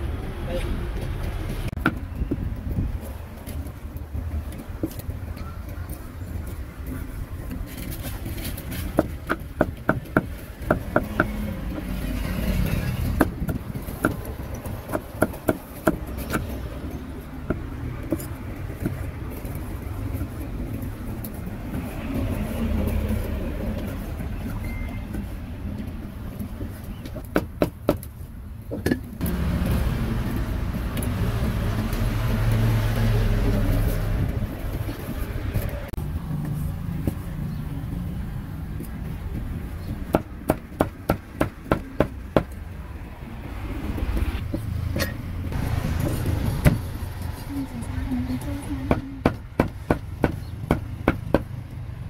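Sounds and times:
road traffic rumble: 0.0s - 52.0s.

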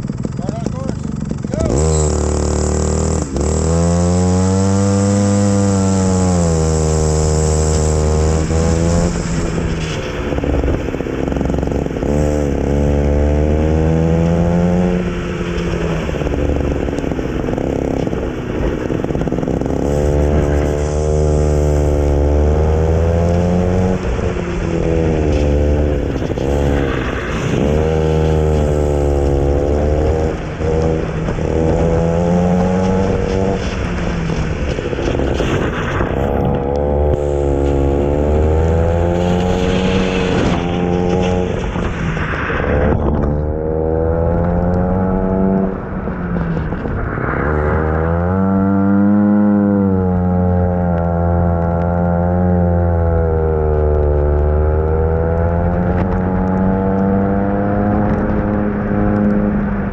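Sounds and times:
go-kart engine revving: 0.0s - 59.9s.

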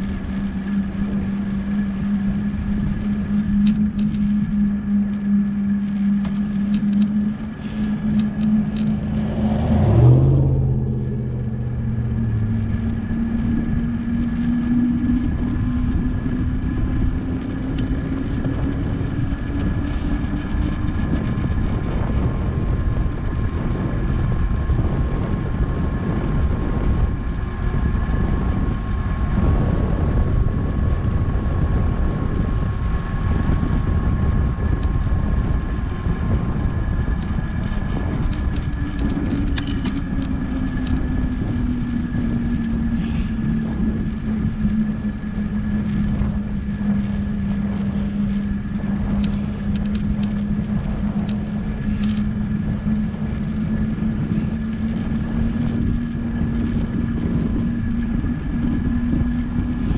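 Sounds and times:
road noise: 0.0s - 59.9s
steady hum: 0.0s - 59.9s
wind rushing over microphone: 0.0s - 59.9s.

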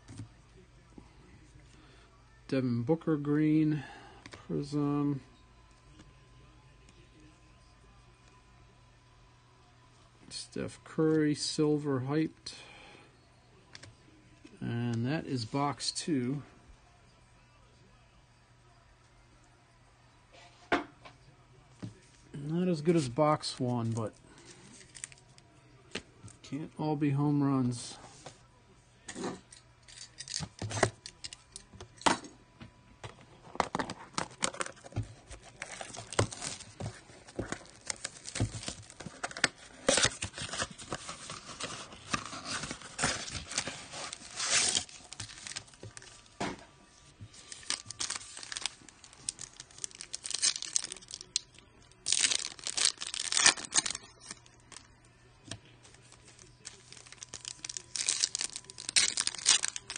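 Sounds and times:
wrapping torn and crinkled: 23.8s - 25.4s, 34.1s - 46.3s, 47.3s - 54.9s, 55.8s - 59.9s
foil packs rustling: 33.6s - 46.2s, 47.3s - 51.3s, 52.0s - 54.8s, 55.9s - 59.9s.

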